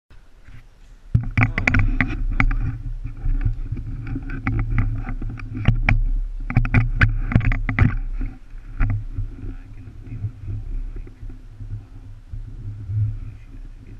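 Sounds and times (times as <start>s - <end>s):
steady low hum: 0.1s - 13.9s
rubbing against microphone: 0.4s - 13.9s
camera handling knocks and clicks: 1.2s - 9.0s.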